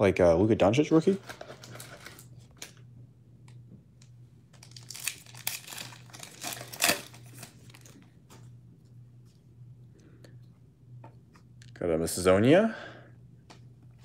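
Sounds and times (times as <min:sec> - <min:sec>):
wrapper tearing and crinkling: 0:04.6 - 0:08.0.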